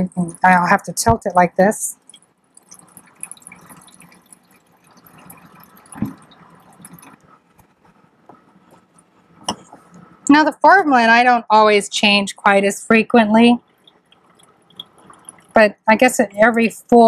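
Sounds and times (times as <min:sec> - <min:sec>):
liquid trickling into a bottle: 0:01.9 - 0:10.2, 0:13.6 - 0:15.6.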